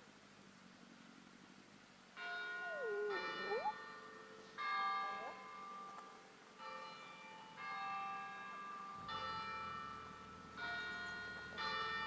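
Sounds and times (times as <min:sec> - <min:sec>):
bell ringing: 0:02.4 - 0:03.8.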